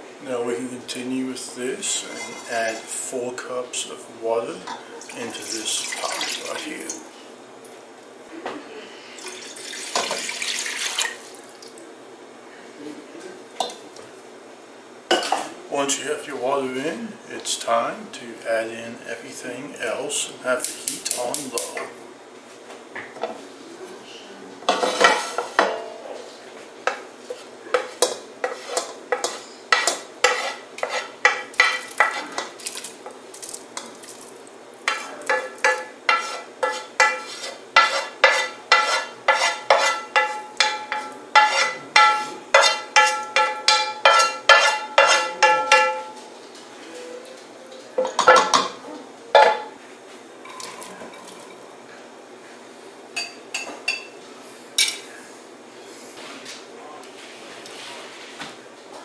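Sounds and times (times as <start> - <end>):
utensil clinking on steel pot: 34.9 - 46.2.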